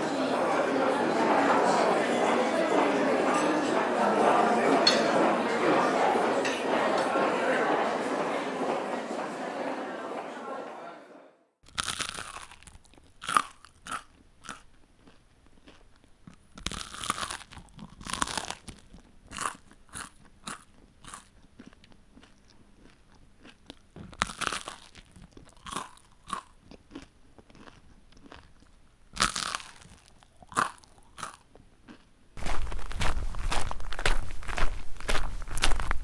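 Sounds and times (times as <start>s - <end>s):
person chewing crunchy food: 11.6s - 36.0s.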